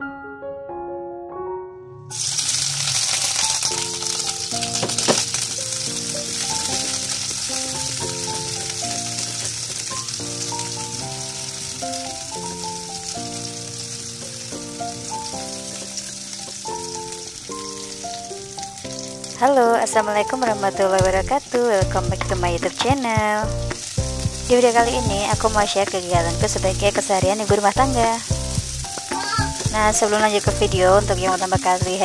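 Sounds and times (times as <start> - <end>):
shallots sizzling in oil: 2.1 - 32.0
wooden spatula stirring: 21.8 - 23.1.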